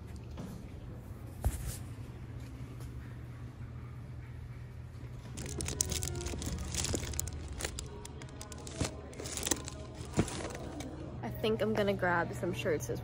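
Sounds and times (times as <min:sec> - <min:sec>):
plastic packages crinkling: 0:05.4 - 0:10.9.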